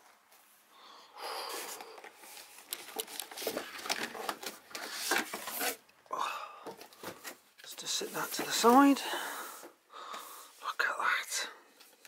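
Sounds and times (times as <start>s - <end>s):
cardboard rustling and scraping: 1.7s - 5.8s, 6.8s - 9.0s.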